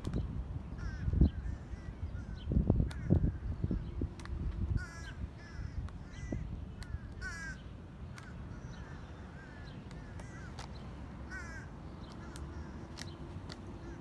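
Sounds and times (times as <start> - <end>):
crows cawing: 0.7 - 3.5, 4.7 - 13.0, 13.8 - 14.0.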